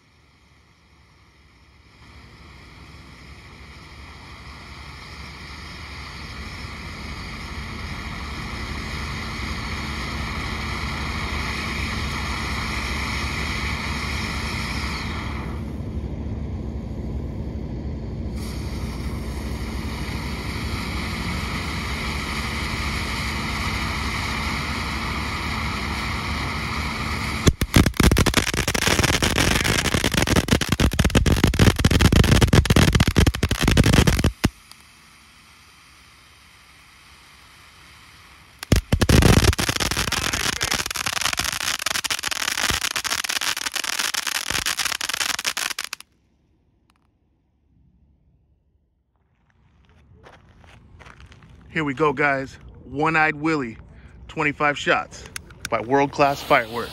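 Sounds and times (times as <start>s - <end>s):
firework fountain hissing: 0.0s - 15.8s, 18.3s - 46.1s, 55.3s - 56.9s
firework crackling: 18.4s - 46.1s, 56.1s - 56.9s.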